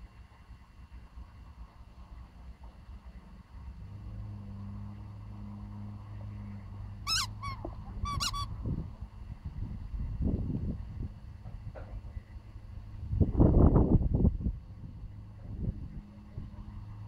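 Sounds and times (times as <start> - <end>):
low steady hum: 0.0 - 17.0
rubber dog toy squeaking: 7.1 - 8.6.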